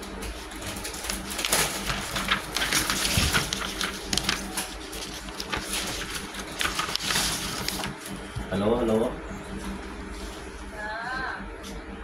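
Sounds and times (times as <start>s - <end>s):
steady low hum: 0.0s - 12.0s
paper rustling: 0.2s - 8.2s.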